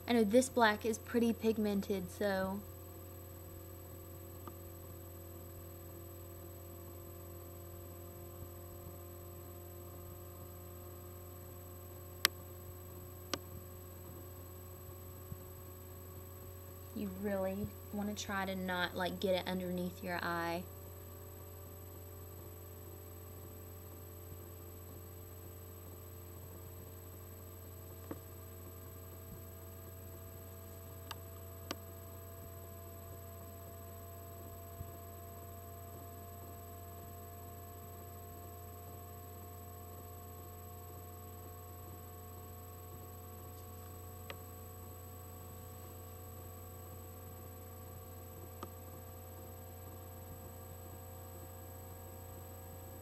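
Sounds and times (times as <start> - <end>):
steady low hum: 0.0 - 53.0.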